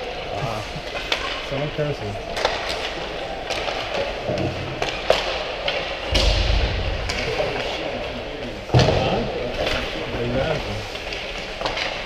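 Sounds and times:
hockey sticks and puck clacking: 0:00.8 - 0:12.0
heavy low thump: 0:06.1 - 0:07.9.

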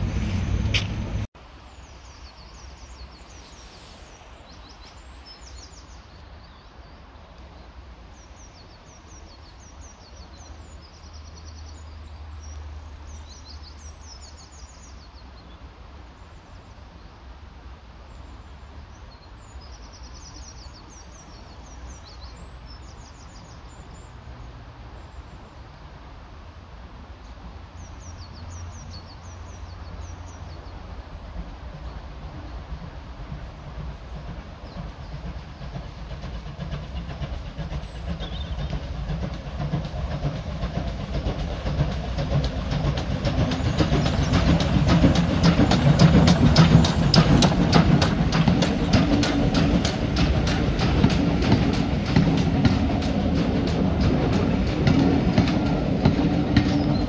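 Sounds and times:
low outdoor rumble: 0:00.0 - 0:01.8
small birds singing: 0:18.1 - 0:25.6, 0:27.8 - 0:30.9, 0:33.9 - 0:57.0.

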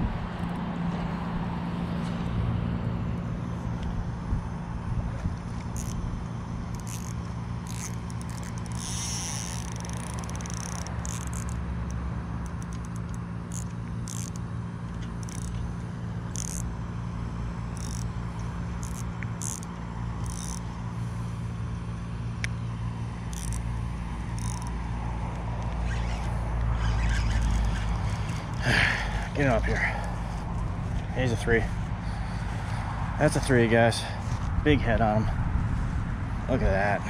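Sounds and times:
steady low hum: 0:00.0 - 0:37.0
fishing reel scratchy bursts: 0:05.7 - 0:06.0, 0:06.7 - 0:11.6, 0:12.4 - 0:14.4, 0:15.2 - 0:15.6, 0:16.3 - 0:16.7, 0:17.7 - 0:18.1, 0:18.8 - 0:20.7, 0:23.2 - 0:23.6, 0:24.3 - 0:24.8, 0:25.6 - 0:32.8.

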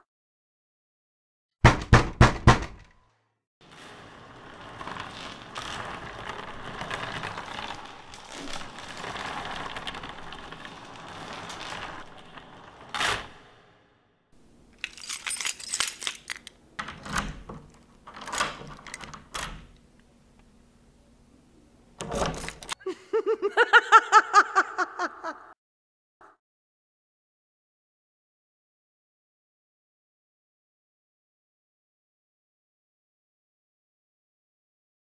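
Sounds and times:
keys jangling: 0:14.6 - 0:19.7, 0:22.0 - 0:22.8.

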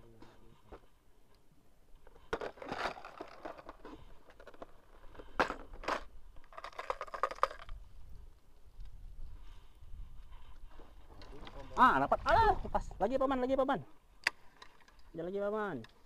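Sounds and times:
plastic lures rustling: 0:02.0 - 0:08.9.

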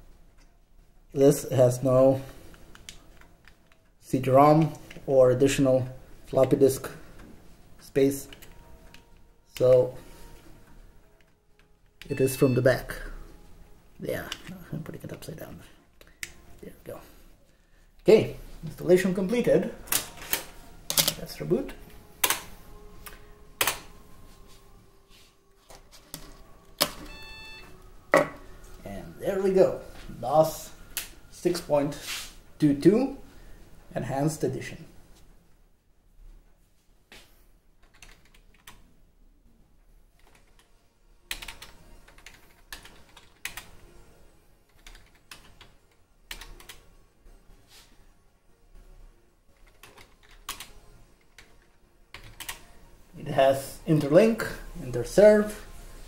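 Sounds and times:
computer keyboard typing: 0:37.8 - 0:38.8, 0:40.2 - 0:40.7, 0:41.3 - 0:43.8, 0:44.7 - 0:46.8, 0:49.6 - 0:52.6.

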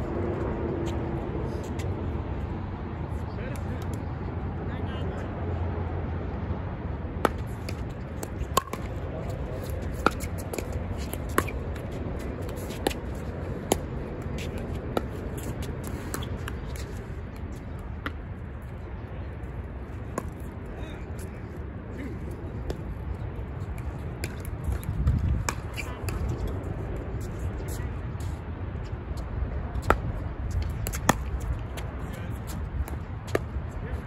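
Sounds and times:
wind rumble: 0:16.9 - 0:34.0.

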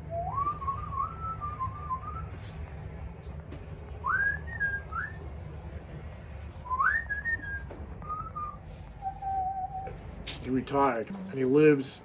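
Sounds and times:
person whistling a tune: 0:00.0 - 0:02.3
low room hum: 0:00.0 - 0:12.0.

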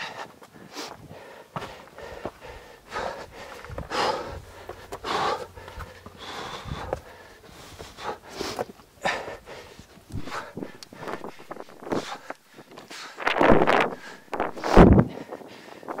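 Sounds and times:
person breathing hard: 0:00.0 - 0:16.0
footsteps scuffing on rock: 0:00.4 - 0:02.4, 0:03.4 - 0:08.8.

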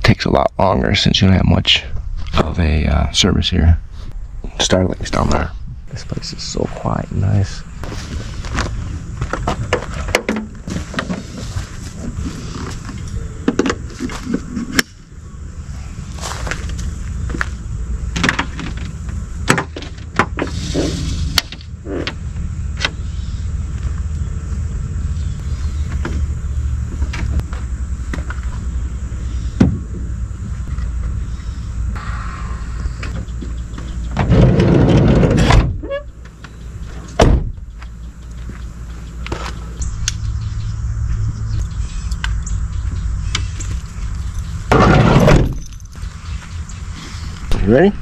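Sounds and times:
steady low rumble: 0:00.0 - 0:48.0
sharp door thump: 0:34.2 - 0:35.8, 0:37.2 - 0:37.6, 0:44.7 - 0:45.6
van sliding door slamming shut: 0:34.2 - 0:35.9, 0:37.2 - 0:37.6, 0:44.7 - 0:45.6.

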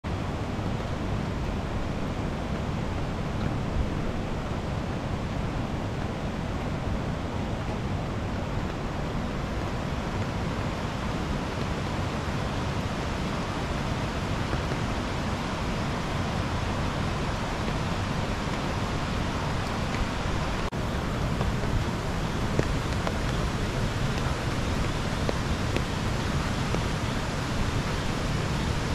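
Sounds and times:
steady rainfall: 0:00.0 - 0:28.9.

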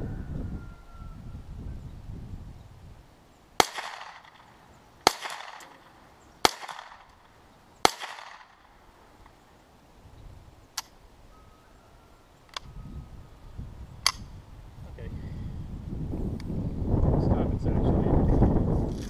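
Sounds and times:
rifle shots echoing: 0:03.6 - 0:09.0.

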